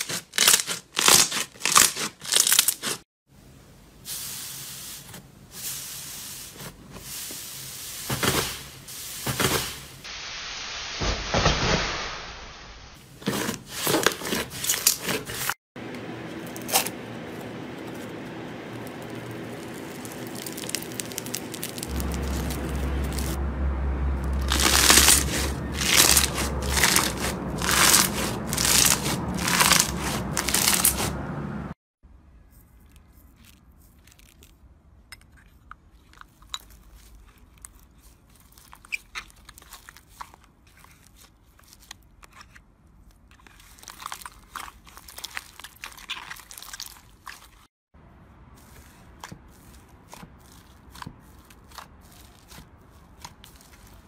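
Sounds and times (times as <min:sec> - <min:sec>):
slime crunching: 0:00.0 - 0:03.0, 0:16.5 - 0:23.4, 0:24.3 - 0:31.2, 0:32.7 - 0:42.2, 0:42.9 - 0:47.7, 0:48.6 - 0:54.0
low hum: 0:15.8 - 0:31.8
slime crackles and clicks: 0:18.8 - 0:23.4.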